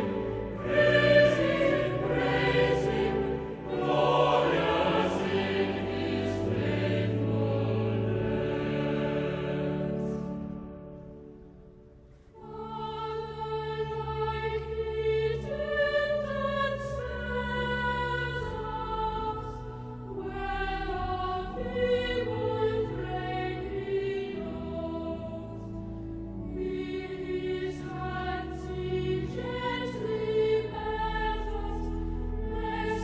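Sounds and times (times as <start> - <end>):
church choir singing: 0.0 - 33.0.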